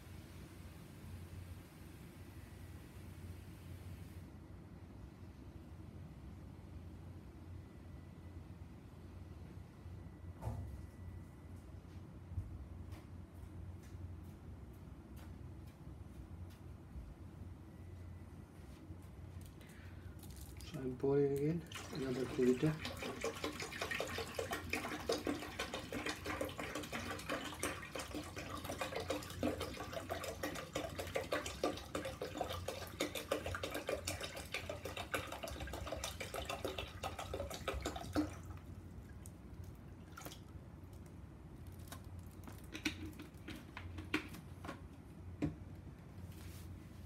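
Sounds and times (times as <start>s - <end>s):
water pouring and splashing: 20.2s - 40.6s.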